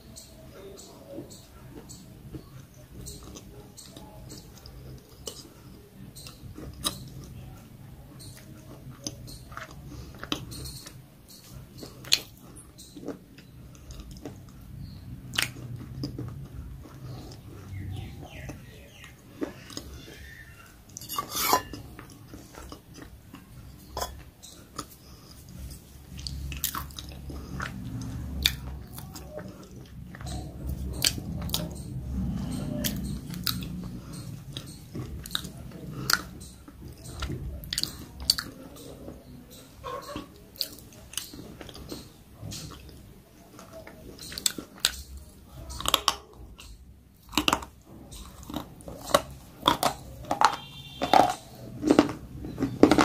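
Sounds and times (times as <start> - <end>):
person chewing crunchy snack: 8.2 - 38.6, 43.6 - 53.0.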